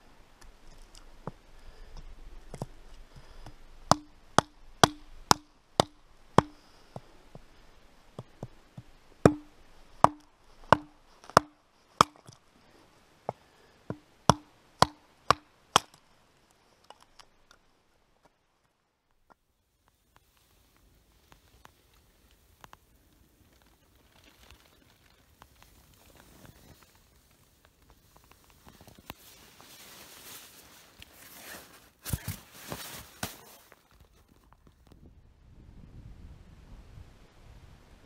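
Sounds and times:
hatchet chopping wood: 3.9s - 7.1s, 9.2s - 12.4s, 13.9s - 16.0s.

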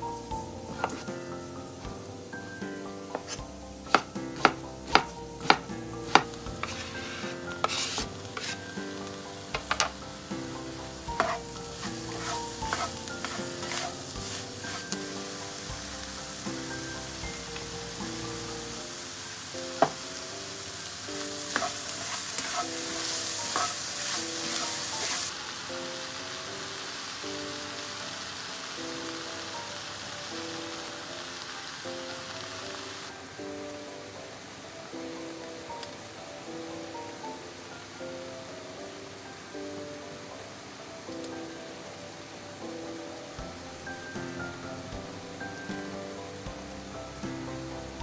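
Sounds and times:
vegetables sizzling in a frying pan: 0.0s - 42.6s
soft background music: 0.0s - 48.0s
spatula stirring and scraping: 3.2s - 10.0s, 11.2s - 15.6s, 21.4s - 25.3s
food scraped off board: 6.1s - 8.7s.

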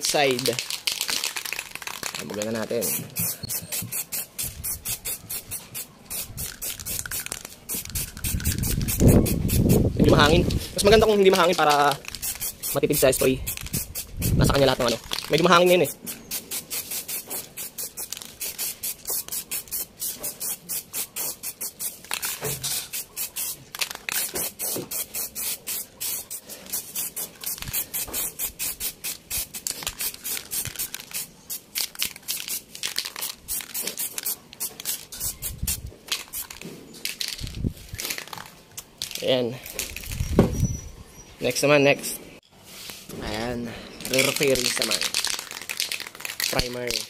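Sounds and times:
aerosol spray can hissing: 0.8s - 36.6s.

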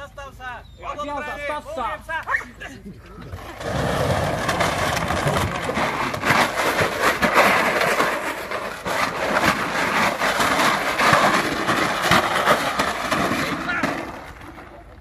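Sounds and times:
plastic bottles clattering: 3.3s - 14.8s.

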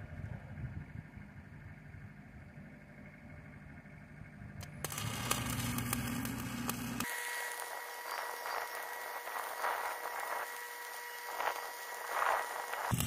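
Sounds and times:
faint high whine: 0.0s - 13.0s
welding arc crackling and popping: 4.6s - 13.0s.

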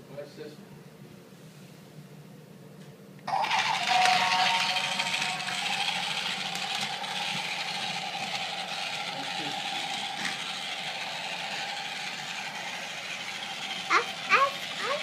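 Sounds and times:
plastic wheels rattling on track: 3.3s - 15.0s
toy train motor whir: 3.3s - 15.0s.

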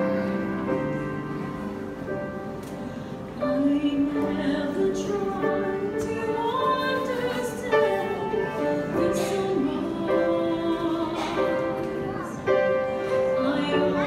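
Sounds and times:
piano accompaniment: 0.0s - 14.0s
woman singing: 3.4s - 14.0s.

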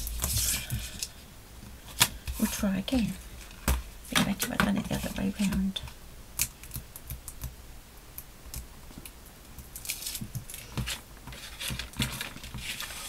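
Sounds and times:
paper rustling and crackling: 9.8s - 13.0s.

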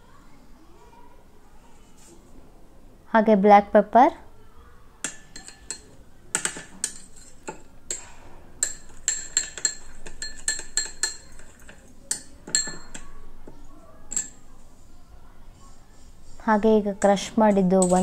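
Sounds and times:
spoon clinking in ceramic bowl: 5.0s - 13.2s, 14.1s - 14.5s, 17.8s - 18.0s.

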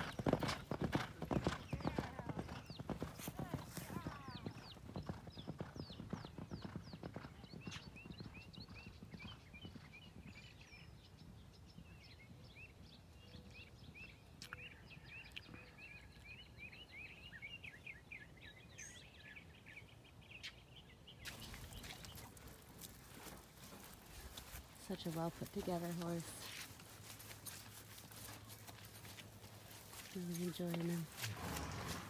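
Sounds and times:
hoofbeats of galloping horses on sand: 0.0s - 14.1s, 21.3s - 32.0s.

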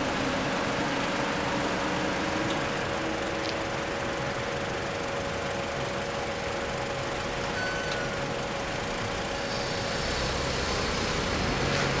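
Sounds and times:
traffic idling: 0.0s - 12.0s.

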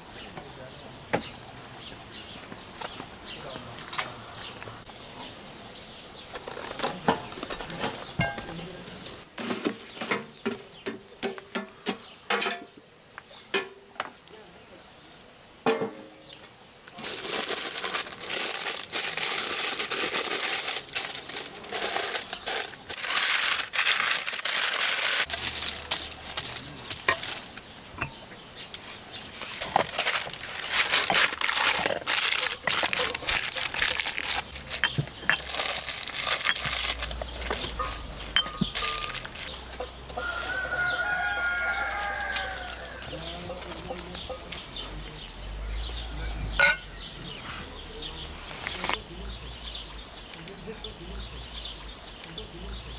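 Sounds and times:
cheese scattering rustling: 9.4s - 12.3s, 16.9s - 28.2s, 28.8s - 39.6s.

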